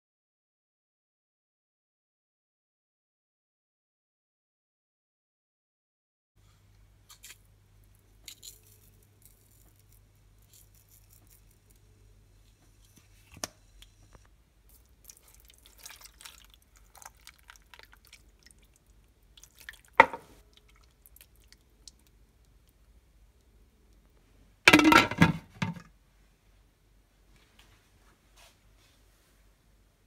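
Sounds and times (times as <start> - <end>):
liquid pouring and splashing: 14.7 - 22.0.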